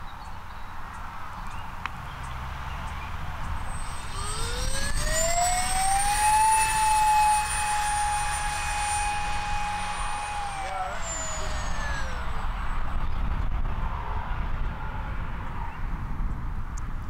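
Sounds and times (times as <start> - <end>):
electric ducted fan whining: 3.3 - 15.8.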